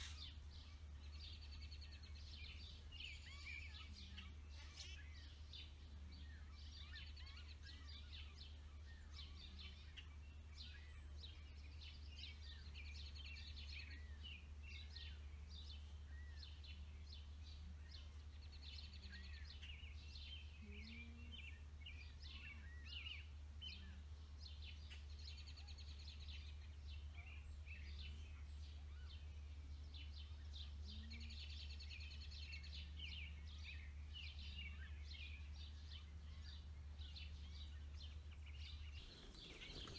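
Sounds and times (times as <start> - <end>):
faint low hum: 0.0 - 39.9
small birds chirping: 0.0 - 39.9
buzzy bird trill: 38.7 - 39.9.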